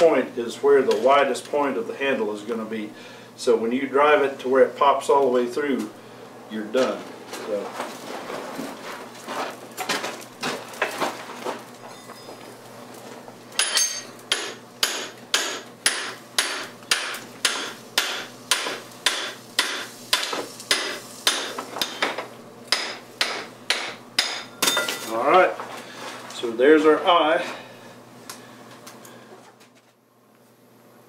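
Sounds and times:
hammer striking steel drift: 0:13.6 - 0:22.0.

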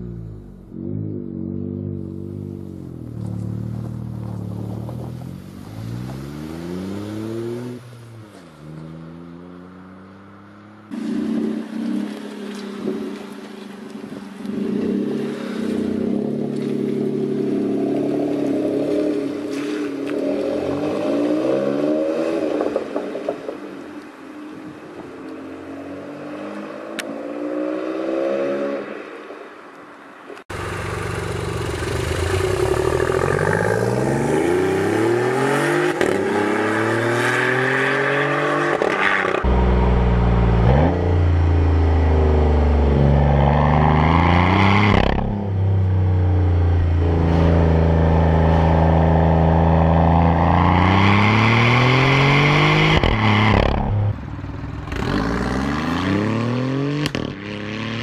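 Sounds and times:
turbocharged car engine accelerating: 0:00.0 - 0:08.0, 0:30.5 - 0:58.0
small car engine revving: 0:30.5 - 0:46.6, 0:47.2 - 0:58.0.

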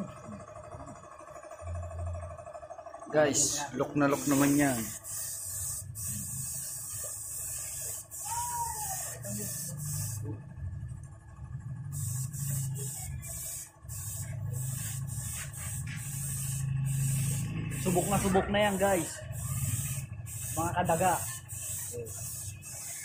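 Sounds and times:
air spray gun hissing: 0:04.0 - 0:10.2, 0:11.9 - 0:23.0.

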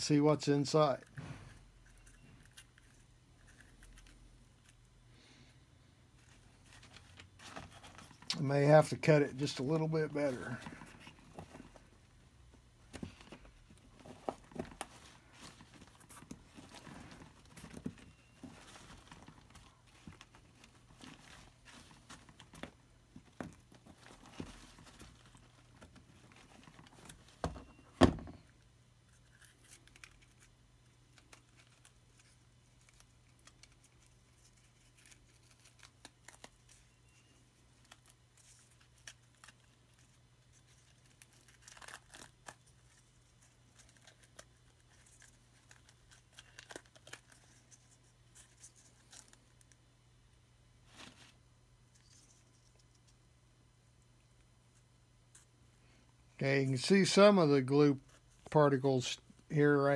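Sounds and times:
paper being torn and crinkled: 0:31.1 - 0:36.8, 0:40.7 - 0:43.0.

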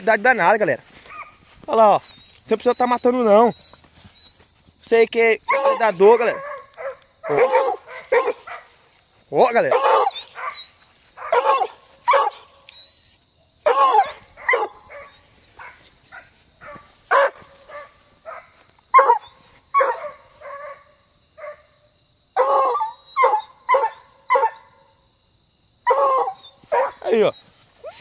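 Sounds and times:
dog barking and yelping: 0:00.9 - 0:01.5, 0:05.4 - 0:08.8, 0:09.6 - 0:21.6, 0:22.4 - 0:24.8, 0:25.8 - 0:28.0.

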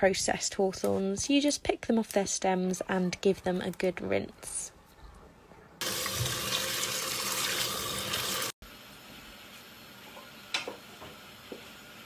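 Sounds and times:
kitchen tap running: 0:05.8 - 0:12.0.

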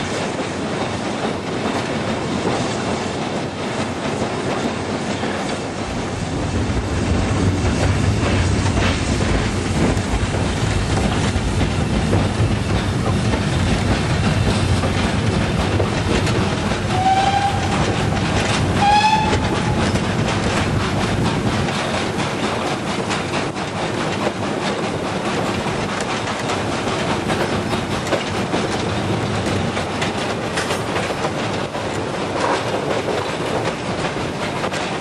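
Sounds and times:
train wagons rumbling and rattling: 0:00.0 - 0:35.0
steam locomotive whistle blasts: 0:16.9 - 0:17.9, 0:18.8 - 0:19.8.

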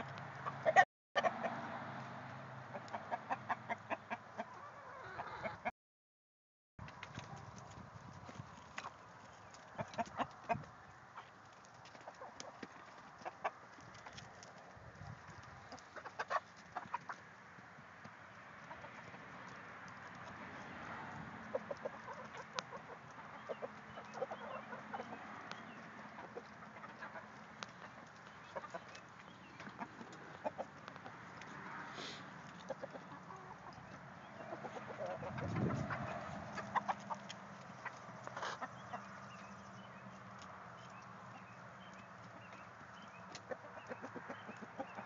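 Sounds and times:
hens clucking: 0:00.0 - 0:01.9, 0:02.6 - 0:05.7, 0:08.6 - 0:45.0.

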